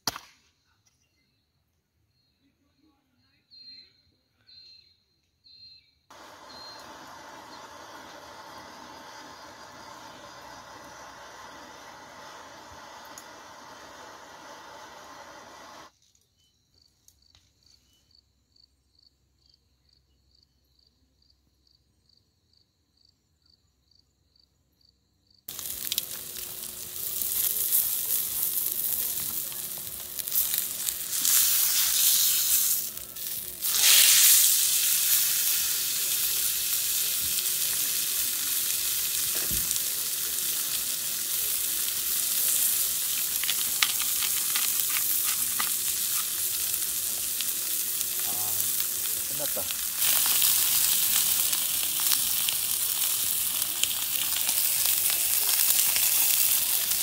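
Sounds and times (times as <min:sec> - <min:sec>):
steak sizzling on grill pan: 0:06.1 - 0:15.9, 0:25.5 - 0:57.0.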